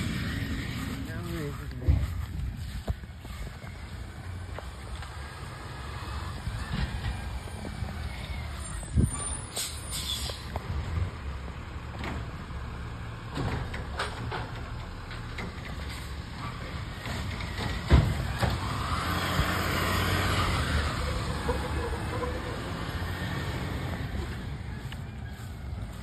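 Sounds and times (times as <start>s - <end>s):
cart knocks and clatters: 0.0s - 5.2s, 6.4s - 8.1s, 13.2s - 19.6s
truck idling: 0.0s - 26.0s
hiss: 9.5s - 10.5s.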